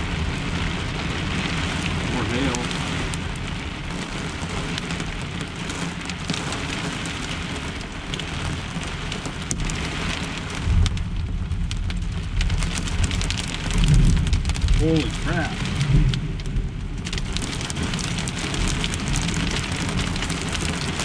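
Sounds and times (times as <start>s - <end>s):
hail and rain drumming on metal: 0.0s - 21.0s
rumble of thunder: 10.5s - 21.0s.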